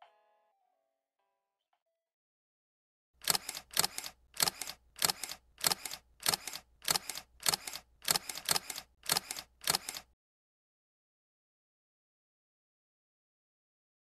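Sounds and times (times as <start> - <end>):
camera shutter clicks: 3.2 - 10.1.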